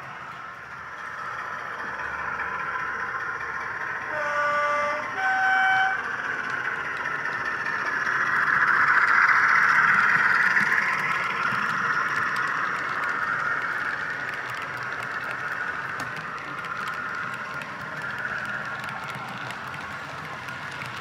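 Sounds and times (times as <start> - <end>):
model train running: 0.0 - 21.0
two-tone train horn: 4.1 - 6.0.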